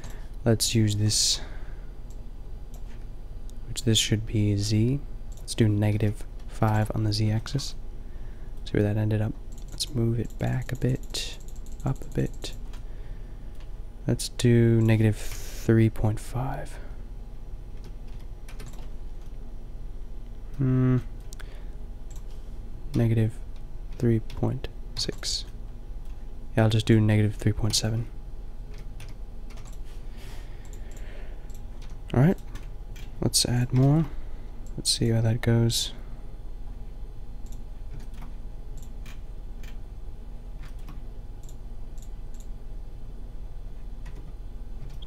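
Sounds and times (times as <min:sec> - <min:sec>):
low electrical hum: 0:00.0 - 0:45.0
keyboard and mouse clicks: 0:17.8 - 0:19.3, 0:28.7 - 0:29.8, 0:40.6 - 0:42.5, 0:44.0 - 0:45.0
person saying um: 0:20.6 - 0:21.1.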